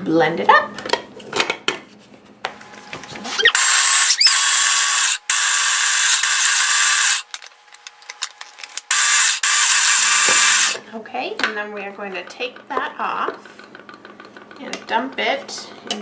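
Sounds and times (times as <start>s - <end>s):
food processor motor whir: 3.2s - 7.4s, 8.6s - 10.8s.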